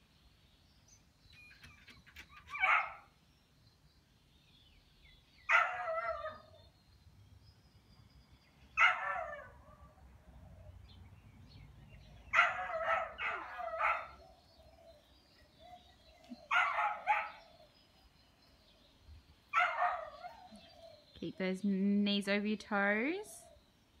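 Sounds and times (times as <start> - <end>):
dog barking: 2.5 - 3.0, 5.5 - 6.5, 8.8 - 9.9, 12.3 - 14.2, 16.5 - 17.5, 19.5 - 20.6.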